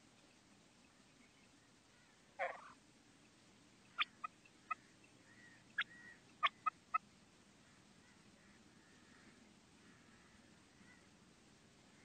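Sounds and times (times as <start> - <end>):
quail calling: 2.0 - 2.8, 3.8 - 11.1.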